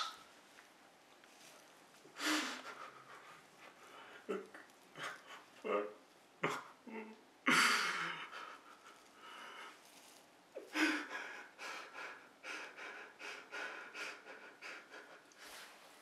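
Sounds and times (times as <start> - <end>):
man breathing heavily: 7.5 - 9.8, 10.6 - 15.7.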